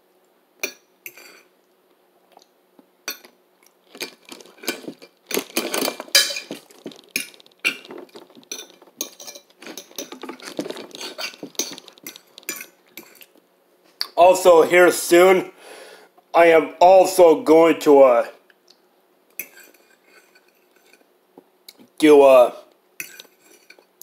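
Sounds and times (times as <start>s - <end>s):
metal fork clinking on a dish: 5.6s - 6.6s, 8.5s - 10.2s, 11.0s - 13.2s, 23.0s - 23.8s.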